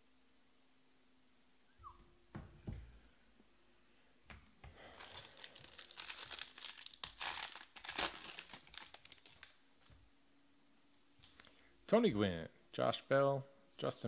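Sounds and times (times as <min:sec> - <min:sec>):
foil wrapper tearing and crinkling: 0:04.8 - 0:09.6.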